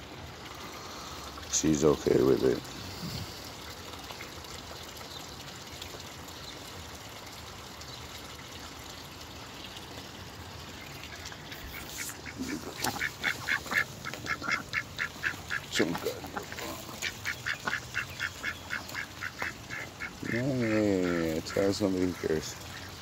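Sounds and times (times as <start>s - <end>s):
trickling water: 0.0s - 23.0s
duck quacking: 11.7s - 22.9s.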